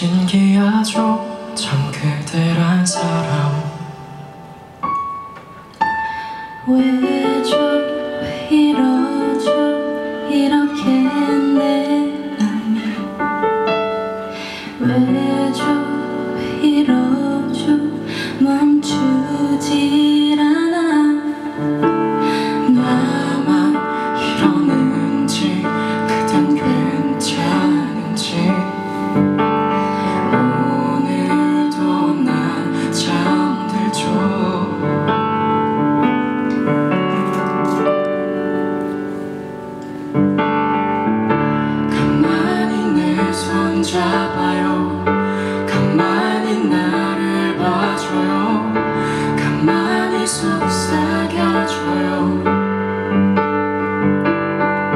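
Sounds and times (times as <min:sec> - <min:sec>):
keyboard piano sound: 0:00.0 - 0:54.9.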